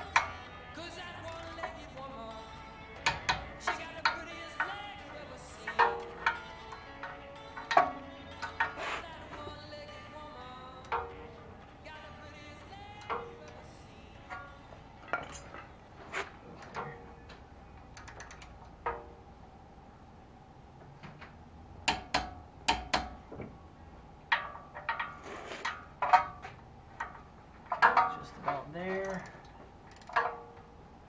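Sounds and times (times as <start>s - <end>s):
metal tools clinking: 14.3s - 17.1s.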